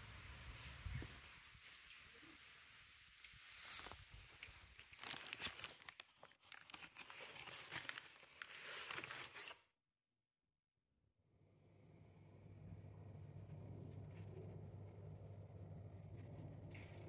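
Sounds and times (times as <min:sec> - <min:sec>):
paper bag crinkling: 0:04.7 - 0:09.7.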